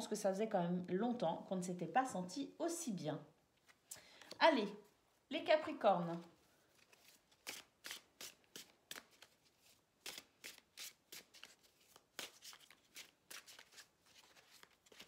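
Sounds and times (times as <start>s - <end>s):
cards being shuffled: 6.1s - 15.0s.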